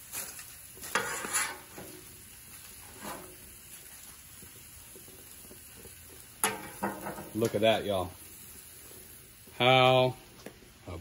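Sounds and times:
metal spatula scraping griddle: 0.0 - 2.1, 2.7 - 3.6, 6.4 - 7.5
faint sizzling: 0.0 - 11.0.

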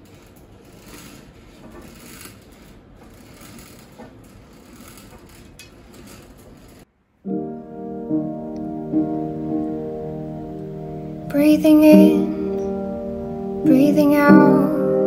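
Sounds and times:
soft hiss: 6.8 - 15.0.

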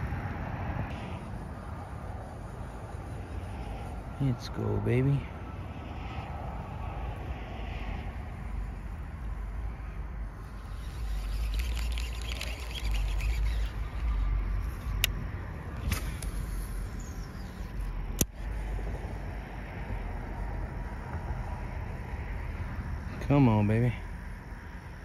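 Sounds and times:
wind rumble on microphone: 0.0 - 23.3
fishing reel fast ticking: 8.5 - 15.2
sharp clicks: 10.7 - 15.2, 17.8 - 18.4.

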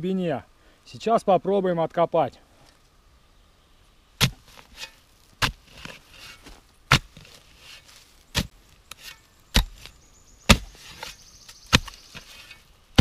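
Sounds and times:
earth rustling: 3.8 - 13.0
shovel chopping into soil: 4.2 - 13.0.

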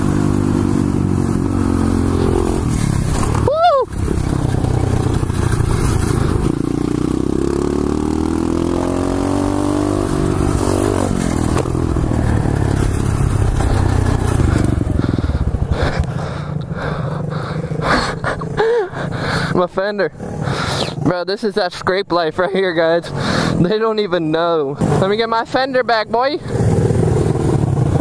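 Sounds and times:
motorcycle engine revving: 0.0 - 21.1, 24.8 - 25.6, 26.3 - 28.0
knocks and scraping clatter: 10.7 - 14.8.

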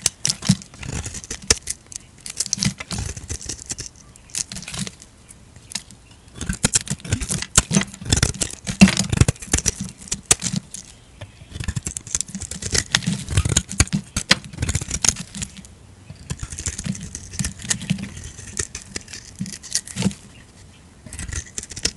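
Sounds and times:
knife slicing crumbly soap: 21.1 - 21.9.

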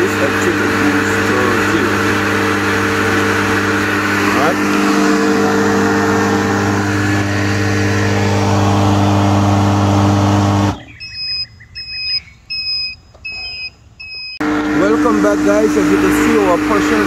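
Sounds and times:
machine motor hum: 0.0 - 12.9, 14.4 - 17.0
short high electronic beeps: 11.0 - 14.4.

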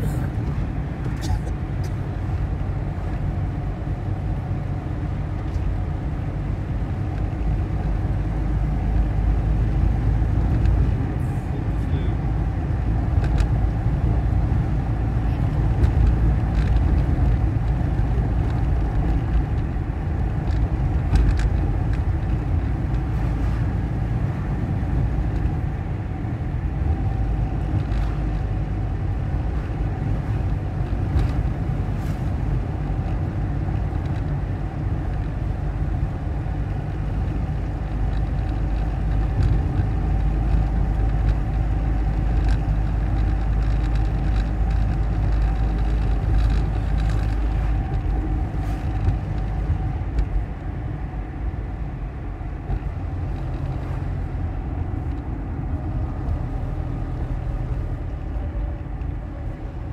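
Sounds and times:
car engine and tyre rumble: 0.0 - 59.9.

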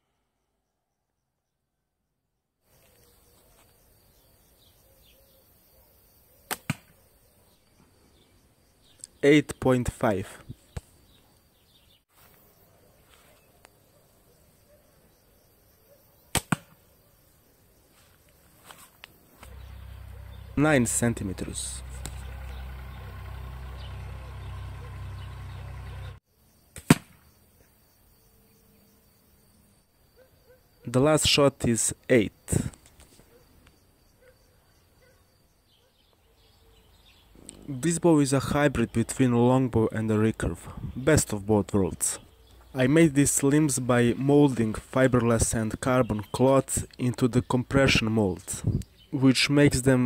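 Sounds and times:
arrow striking target: 6.5 - 6.9, 16.3 - 16.8, 26.8 - 27.2
bowstring snap: 6.5 - 7.0, 16.3 - 16.8.

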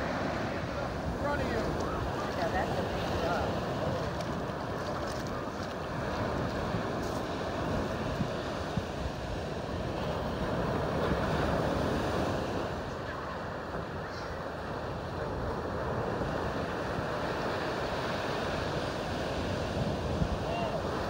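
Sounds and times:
ocean surf breaking: 0.0 - 21.0
wind rumbling on microphone: 0.0 - 21.0.

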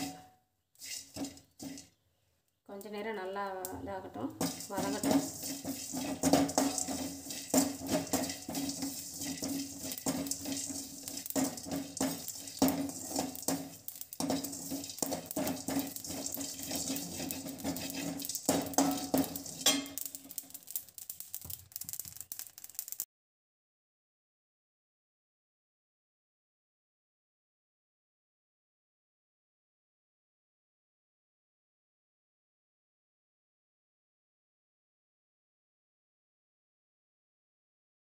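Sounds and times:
ladle scraping metal pan: 0.0 - 2.0, 4.3 - 21.4.

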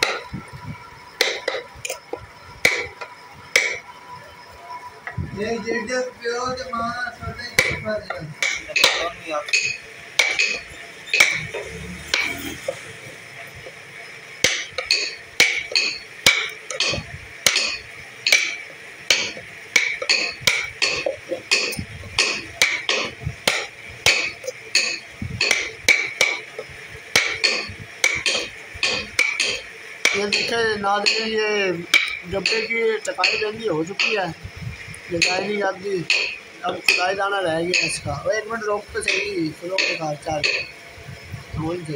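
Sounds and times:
mallet striking chisel into wood: 0.0 - 0.3, 1.2 - 2.0, 2.6 - 3.0, 3.6 - 3.8, 7.6 - 12.5, 14.4 - 26.4, 27.1 - 31.3, 31.9 - 34.2, 36.1 - 38.0, 39.1 - 40.7.

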